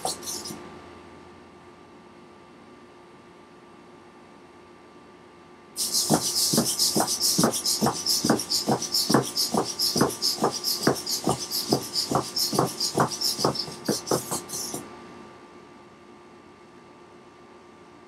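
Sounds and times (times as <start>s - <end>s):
servo motors buzzing and whirring: 0.0s - 0.6s, 5.8s - 14.8s
robot legs stepping on wood: 5.8s - 14.8s.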